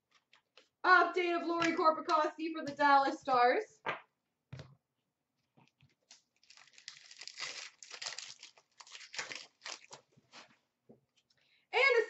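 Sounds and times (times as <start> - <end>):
card pack wrapper tearing: 6.1 - 10.1.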